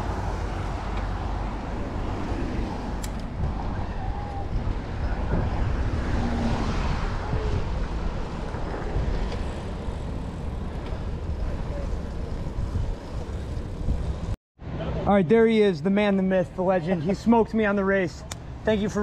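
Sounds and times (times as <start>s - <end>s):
wind rumble on microphone: 0.0s - 14.4s
bicycle road noise: 0.0s - 15.0s
background traffic: 0.0s - 19.0s.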